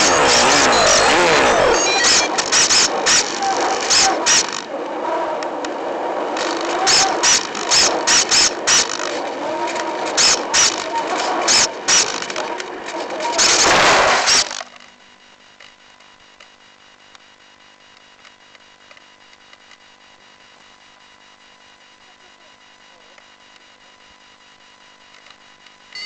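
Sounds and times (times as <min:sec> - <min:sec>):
short crackling bursts: 0:00.0 - 0:04.8, 0:05.6 - 0:14.7
faint steady hum: 0:00.0 - 0:26.0.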